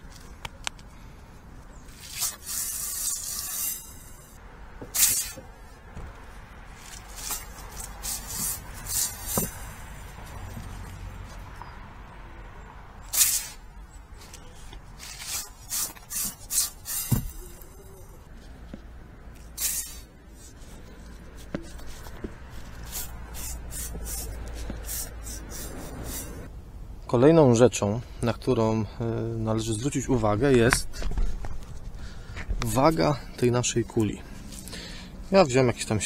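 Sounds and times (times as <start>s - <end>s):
wire brush scraping brick flue: 1.9s - 5.6s, 6.7s - 10.9s, 14.2s - 18.6s, 19.4s - 26.5s.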